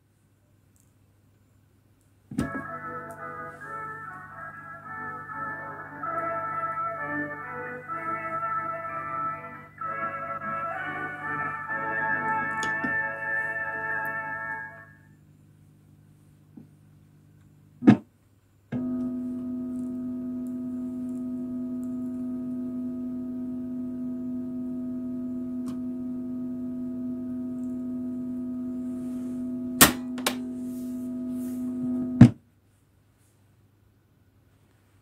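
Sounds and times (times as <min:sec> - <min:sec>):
steady electronic tone: 0:18.8 - 0:32.2.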